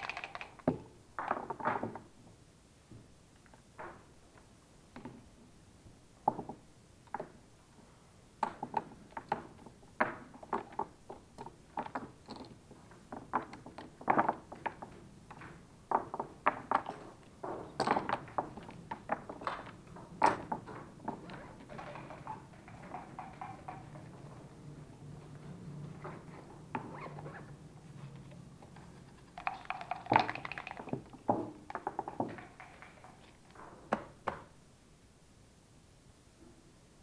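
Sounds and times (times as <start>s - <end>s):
checkers and dice clacking: 0.0s - 1.5s, 13.3s - 25.1s, 28.2s - 33.8s.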